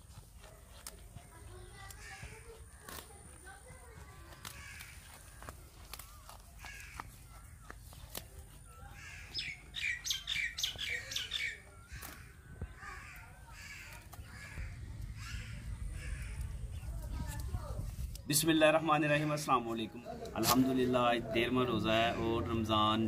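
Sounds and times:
birds chirping: 0:01.2 - 0:23.0
crow-like cawing: 0:06.6 - 0:07.0, 0:12.2 - 0:17.0.

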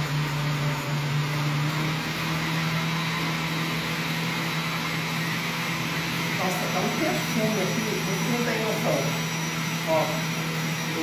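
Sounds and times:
blender motor humming: 0:00.0 - 0:11.0.

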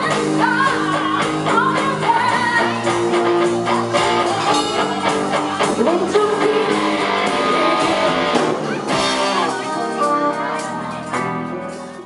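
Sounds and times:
woman singing: 0:00.0 - 0:03.0, 0:03.7 - 0:08.0
drums: 0:00.0 - 0:12.0
electric guitar: 0:00.0 - 0:12.0
live pop band playing: 0:00.0 - 0:12.0.

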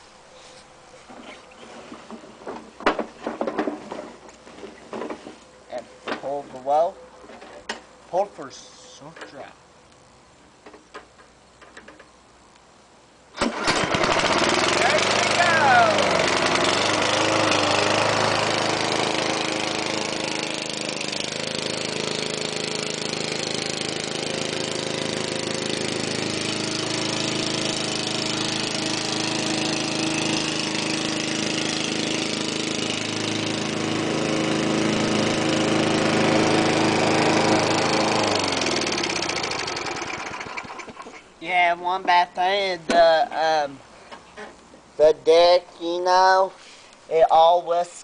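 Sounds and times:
lawn mower engine running: 0:13.4 - 0:41.3.

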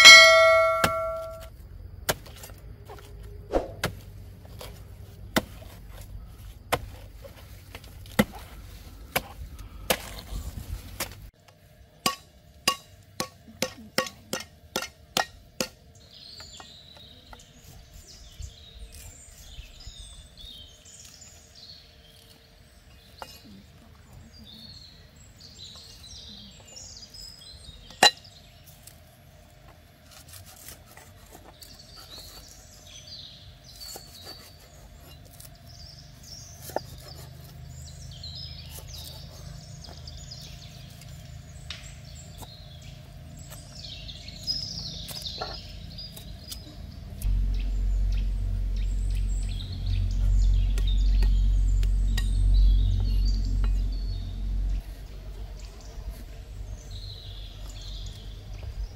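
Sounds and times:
birds chirping: 0:00.0 - 0:01.4, 0:31.4 - 0:58.9.

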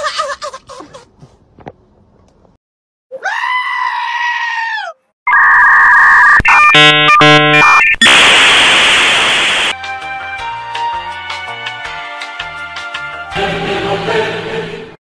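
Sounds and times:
bleating scream: 0:03.2 - 0:05.1
electronic beeping tones: 0:05.3 - 0:09.7
loud hissing noise: 0:08.0 - 0:09.8.

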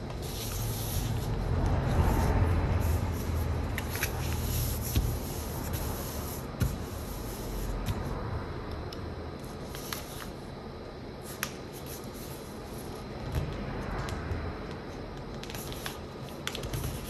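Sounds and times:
paper rustling and rubbing: 0:00.0 - 0:08.0, 0:15.3 - 0:17.0
sharp paper crackles: 0:15.2 - 0:17.0.

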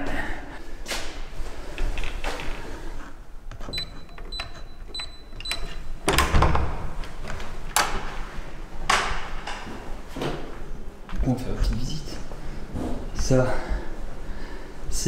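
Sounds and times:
keypad short high beeps: 0:03.7 - 0:05.9.

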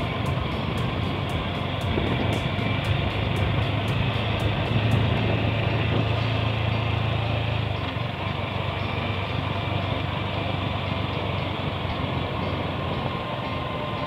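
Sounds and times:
motorcycle engine running: 0:00.0 - 0:14.0.

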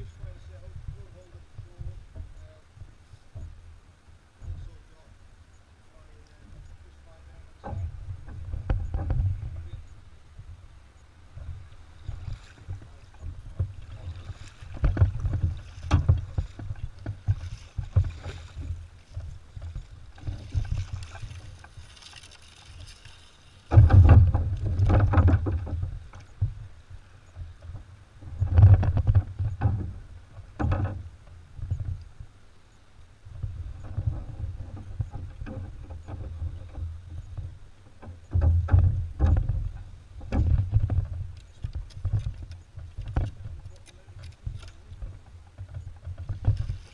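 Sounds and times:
paddle strokes splashing: 0:11.3 - 0:27.8, 0:40.2 - 0:46.9.

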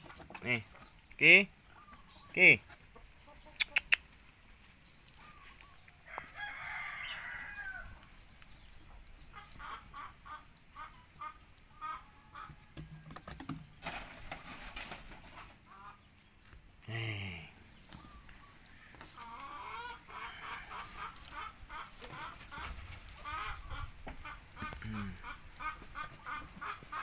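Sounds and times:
chickens clucking: 0:00.0 - 0:27.0.

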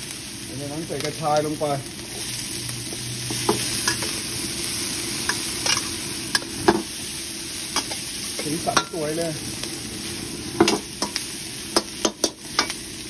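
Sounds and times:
stir-fry sizzling in a wok: 0:00.0 - 0:13.0
spatula scraping wok: 0:00.9 - 0:07.0.

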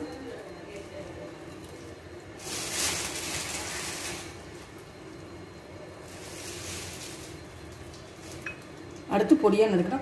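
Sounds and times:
fried onions rustling: 0:02.3 - 0:04.9, 0:06.0 - 0:08.6.

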